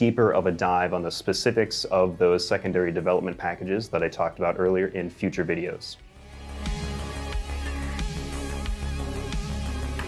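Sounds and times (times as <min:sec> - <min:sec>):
electronic music with heavy bass: 0:06.0 - 0:10.0.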